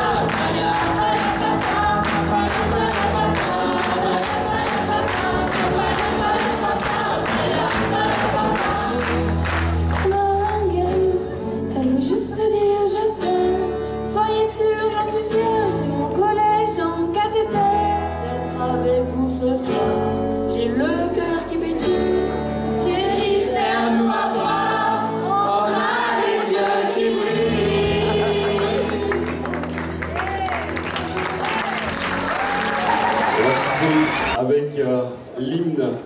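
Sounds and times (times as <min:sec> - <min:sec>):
choir singing: 0:00.0 - 0:10.1, 0:22.8 - 0:29.5
musical accompaniment: 0:00.0 - 0:34.4.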